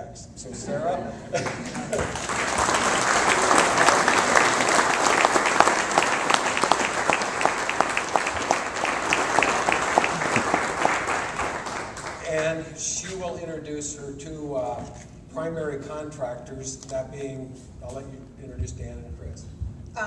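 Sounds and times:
audience applauding: 1.4s - 12.5s.

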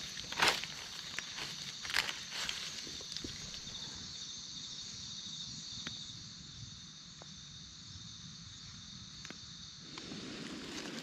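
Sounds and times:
insects buzzing: 0.0s - 11.0s.

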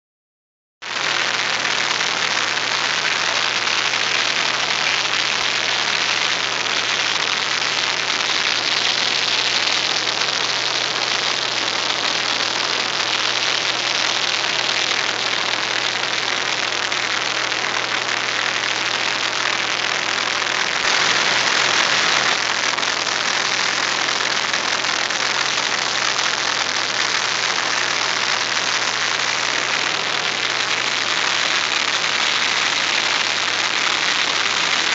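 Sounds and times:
rush of airflow: 20.8s - 24.0s.

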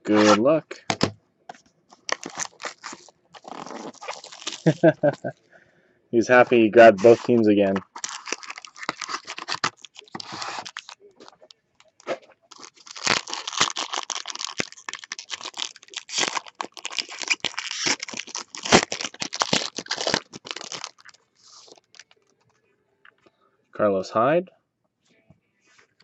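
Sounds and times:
foil pack crackling: 1.9s - 5.2s, 7.0s - 22.3s.

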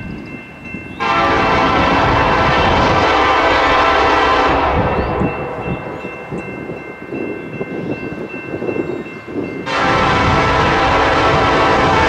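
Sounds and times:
crossing bells ringing: 0.0s - 12.0s
freight train rumble: 0.0s - 12.0s
locomotive horn: 1.0s - 6.3s, 9.6s - 12.0s.

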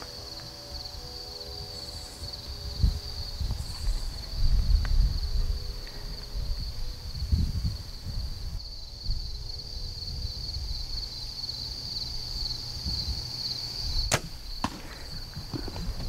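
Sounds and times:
insects chirring: 0.0s - 16.0s
bow shot snap: 14.0s - 16.0s
sharp crack: 14.1s - 16.0s.

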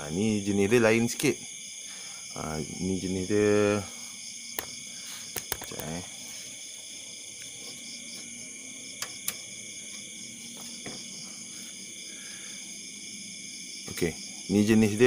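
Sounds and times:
high-pitched insect chorus: 0.0s - 15.0s
sharp clicks: 5.3s - 6.0s, 9.0s - 9.4s.

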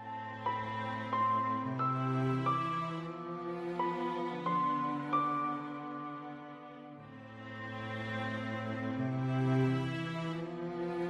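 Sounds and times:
slow tender instrumental music: 0.0s - 11.0s.

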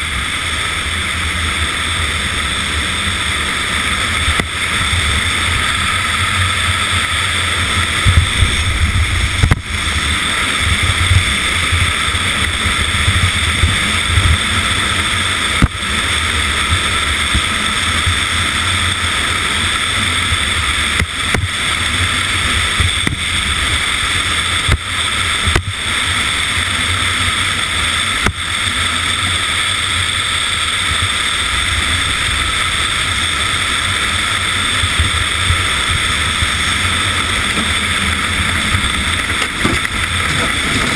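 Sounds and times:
bobsleigh runners rushing on ice: 0.0s - 40.9s
wind rushing: 4.9s - 14.3s.

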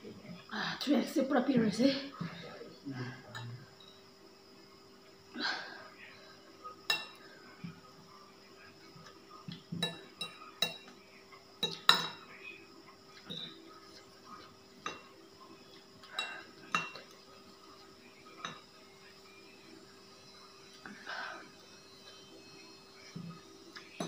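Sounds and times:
cutlery clinking on ceramic bowl: 6.9s - 7.2s, 9.8s - 10.9s, 11.6s - 12.3s, 14.8s - 15.1s, 16.0s - 17.1s.

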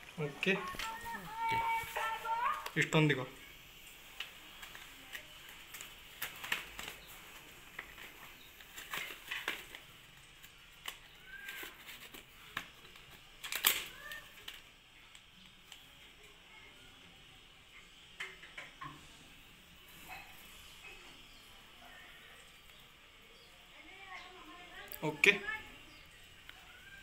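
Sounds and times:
packaging crinkling: 0.0s - 15.8s.

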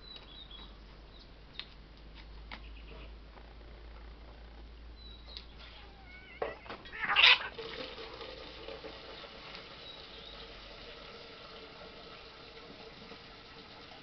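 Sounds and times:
water running into basin: 6.9s - 14.0s.

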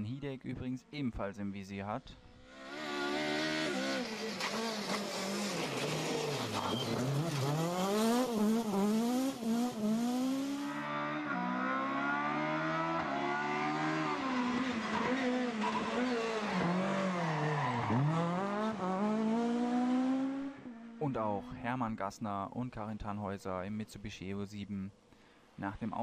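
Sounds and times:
rally car engines revving: 2.2s - 21.0s.

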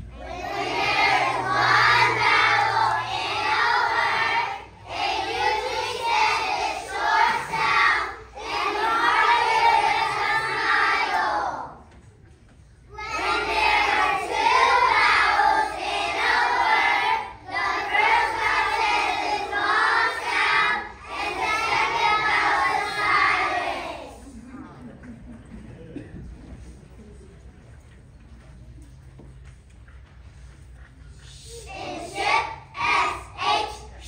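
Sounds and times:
young children singing together: 0.0s - 12.0s, 12.8s - 24.4s, 30.7s - 34.0s.

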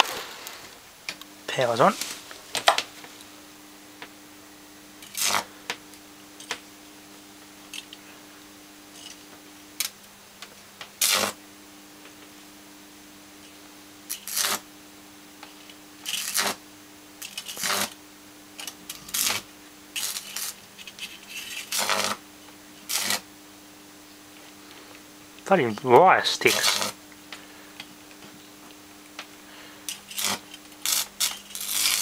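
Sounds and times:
electric arcs crackling: 0.0s - 3.4s, 4.9s - 6.8s, 8.8s - 11.4s, 13.4s - 14.7s, 15.3s - 23.4s, 24.4s - 32.0s.

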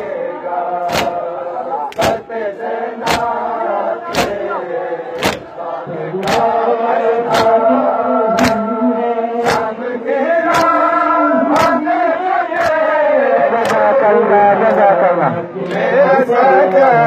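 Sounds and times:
group of men chanting: 0.0s - 17.0s
hands slapping chests: 0.9s - 1.2s, 1.9s - 2.3s, 3.0s - 3.4s, 4.0s - 4.5s, 5.1s - 5.6s, 6.2s - 7.7s, 8.3s - 8.7s, 9.4s - 9.8s, 10.5s - 10.9s, 11.5s - 11.9s, 12.5s - 12.9s, 13.6s - 14.0s, 15.6s - 15.9s.

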